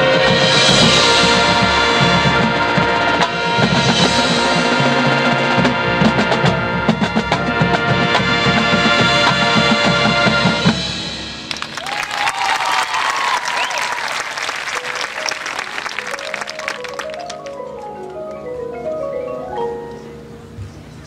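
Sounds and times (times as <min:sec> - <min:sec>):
marching band brass and drums: 0:00.0 - 0:18.2
crowd applause and cheering: 0:11.4 - 0:18.4
marimba rising runs: 0:11.5 - 0:20.6.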